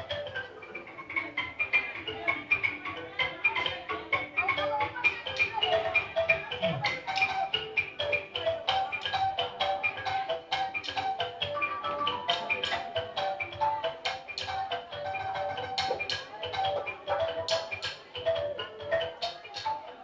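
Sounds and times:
percussion beat: 0.0s - 20.0s
xylophone music: 0.0s - 20.0s.

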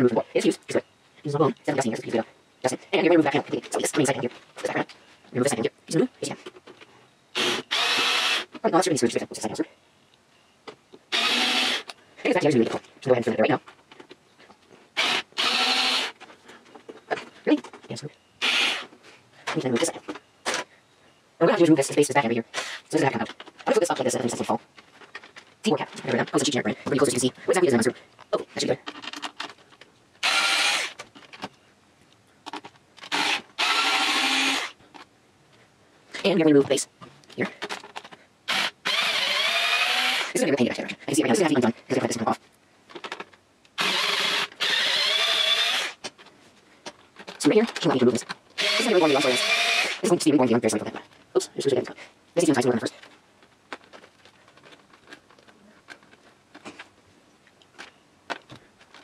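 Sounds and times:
electric screwdriver whirring: 7.4s - 8.5s, 11.1s - 11.9s, 15.0s - 16.2s, 18.4s - 18.9s, 30.2s - 31.0s, 33.0s - 34.8s, 38.5s - 40.4s, 43.8s - 46.0s, 48.6s - 50.0s.

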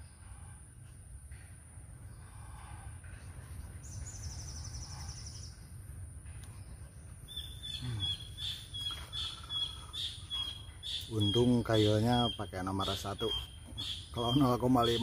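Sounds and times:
thin high bird chirping: 6.8s - 15.0s.

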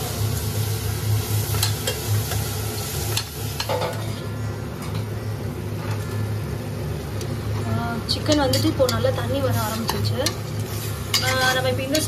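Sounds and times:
mushrooms sizzling in butter: 0.0s - 4.2s, 7.6s - 12.0s
steady low hum: 0.0s - 12.0s
metal spoon scraping a pan: 8.3s - 12.0s.

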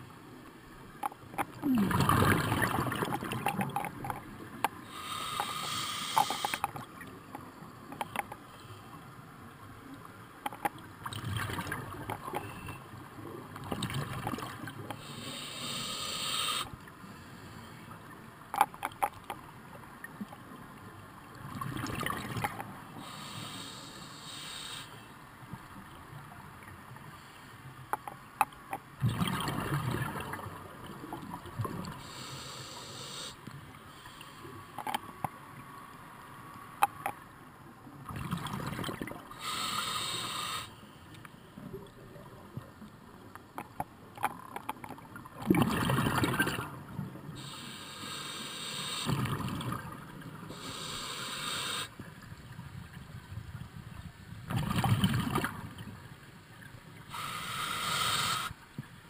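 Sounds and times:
gurgling exhaled bubbles: 1.5s - 3.8s, 45.4s - 46.8s, 54.5s - 55.6s
regulator inhalation hiss: 4.8s - 6.7s, 15.0s - 16.7s, 23.0s - 25.0s, 32.0s - 34.4s, 39.3s - 40.8s, 47.4s - 49.2s, 50.5s - 52.0s, 57.1s - 58.6s.

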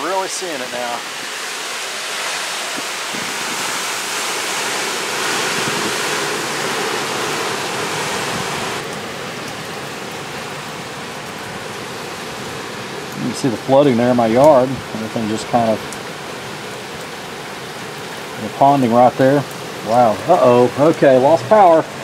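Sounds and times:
strong wind and heavy rain: 0.0s - 22.0s.

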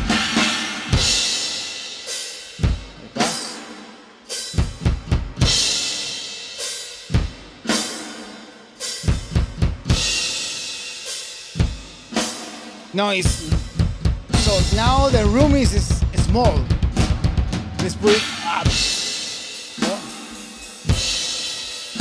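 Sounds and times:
snare drum: 3.0s - 3.8s, 11.6s - 22.0s
drum fill: 11.6s - 22.0s.

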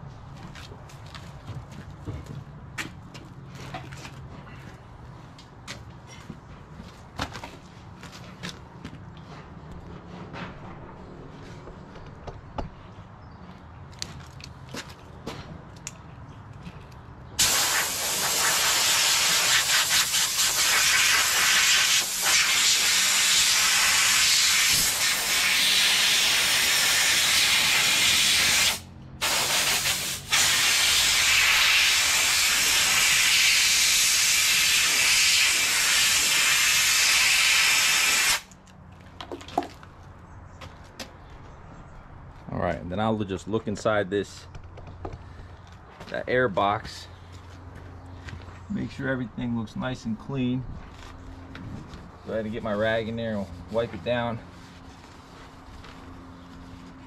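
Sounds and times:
compressed air blow gun hissing: 17.4s - 38.5s.

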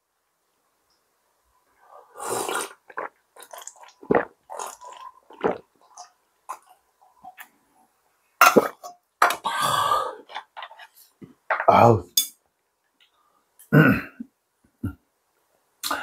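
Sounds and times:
person gulping and swallowing: 2.2s - 6.7s.

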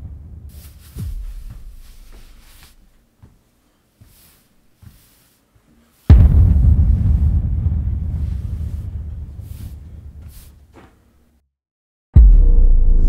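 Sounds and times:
low cinematic booms: 0.0s - 2.4s, 6.1s - 10.3s, 12.2s - 13.0s
deep rumble: 0.0s - 2.5s, 6.1s - 10.2s, 12.2s - 13.0s.

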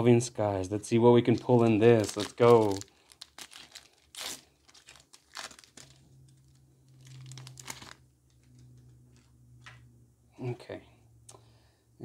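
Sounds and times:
foil wrapper tearing and crinkling: 1.2s - 8.6s.

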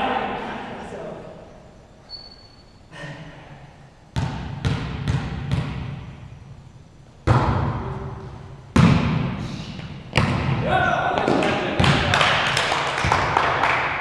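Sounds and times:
volleyball smacks echoing: 7.2s - 13.6s.

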